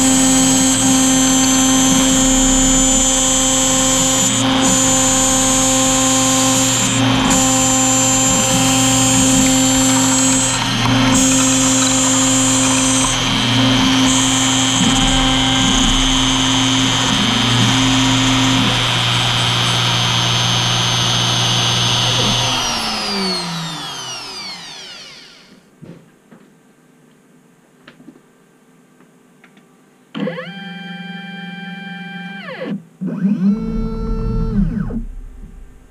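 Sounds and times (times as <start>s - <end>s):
router spindle whining: 0.0s - 25.6s, 30.2s - 35.9s
spindle spinning down: 1.3s - 25.5s.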